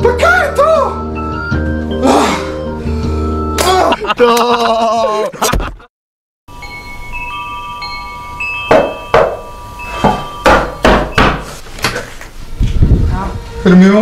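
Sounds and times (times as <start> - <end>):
metal wind chime ringing: 6.5 - 11.6
knocks on wooden door: 8.7 - 9.4.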